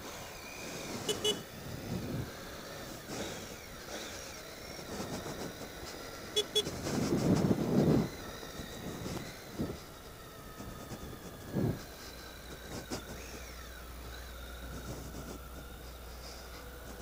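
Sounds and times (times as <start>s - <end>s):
motorcycle engine rumble: 0.0s - 17.0s
horn double toot: 0.9s - 1.5s, 6.3s - 6.7s.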